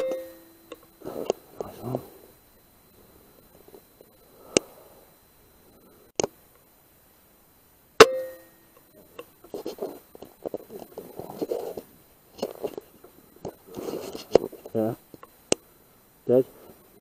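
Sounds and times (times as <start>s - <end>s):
ringing tone: 0.0s - 2.3s, 8.0s - 9.0s
soft irregular noises: 0.0s - 17.0s
faint clicks: 3.7s - 4.7s.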